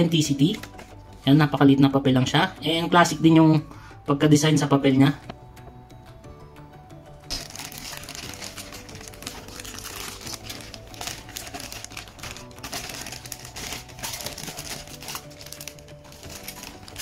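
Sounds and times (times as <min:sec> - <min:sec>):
soft background music: 0:00.0 - 0:17.0
plastic bag crinkling: 0:07.3 - 0:17.0.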